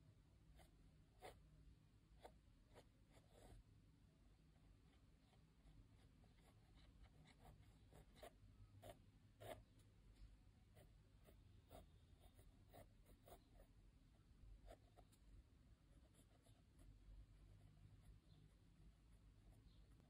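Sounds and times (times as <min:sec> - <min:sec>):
pencil scratching on paper: 0:00.5 - 0:01.5, 0:02.1 - 0:03.7, 0:04.8 - 0:09.9, 0:10.7 - 0:13.8, 0:14.6 - 0:15.3, 0:15.9 - 0:20.0.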